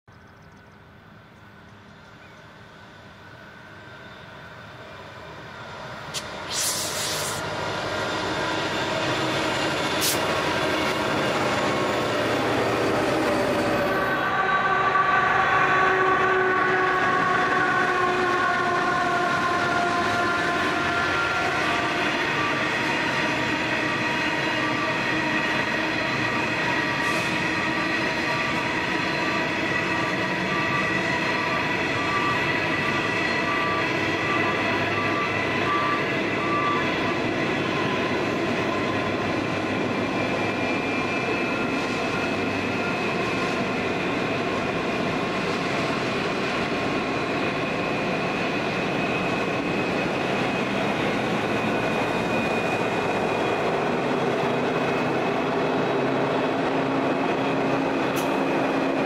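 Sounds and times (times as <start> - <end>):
diesel locomotives: 0.0 - 59.0
train wagons rumbling past: 7.4 - 59.0
whining tones of wagons: 7.5 - 45.6.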